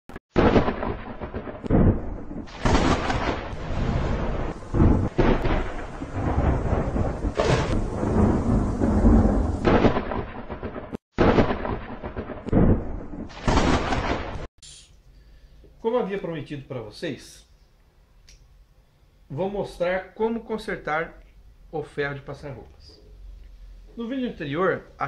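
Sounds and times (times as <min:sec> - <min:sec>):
thunder rumbling and crashing: 0:00.4 - 0:14.5.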